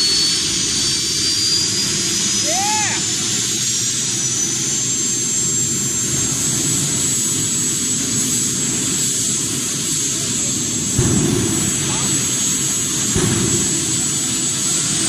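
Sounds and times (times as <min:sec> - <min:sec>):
jet turbine engine whine: 0:00.0 - 0:15.0.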